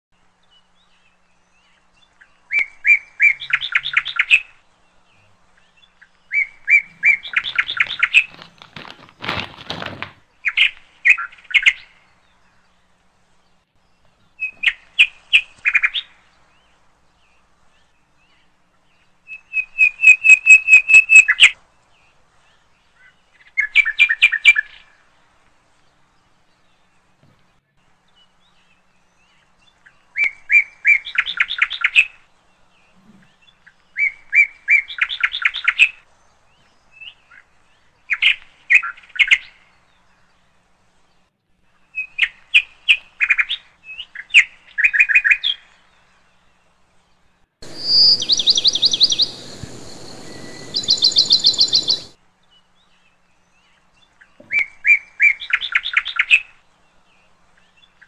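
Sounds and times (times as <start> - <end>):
songbird singing trills: 0.2 - 8.8, 10.4 - 21.6, 47.6 - 58.0
rapid higher bird chirps: 6.3 - 9.2, 47.6 - 52.2
steady hiss: 47.6 - 52.2.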